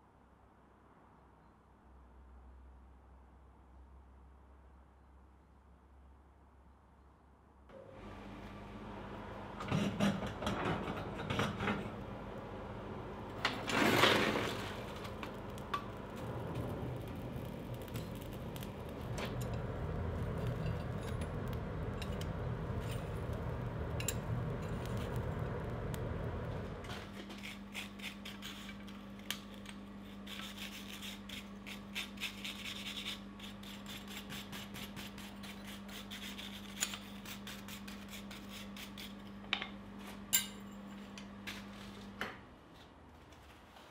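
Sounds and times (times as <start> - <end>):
steady low hum: 4.2 - 13.7, 14.6 - 42.7
forge fire rushing: 13.4 - 26.9
coal being raked: 13.4 - 39.2.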